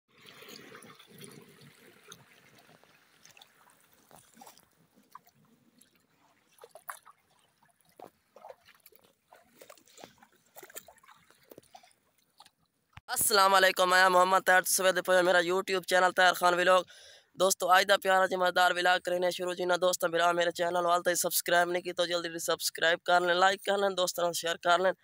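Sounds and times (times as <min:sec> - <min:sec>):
water flowing: 0:00.1 - 0:12.5
small ticks and splashes: 0:00.1 - 0:13.0.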